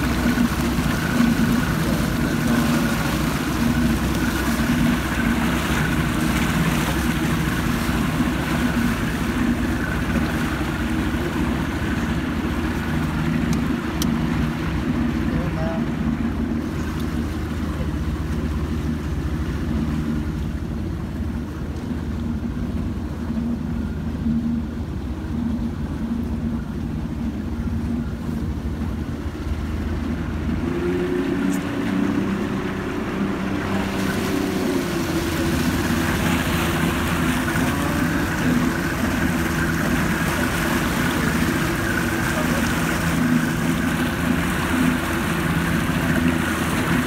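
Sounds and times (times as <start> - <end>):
motorboat engine running: 0.0 - 47.0
water rushing past hull: 0.0 - 47.0
wind: 0.0 - 47.0.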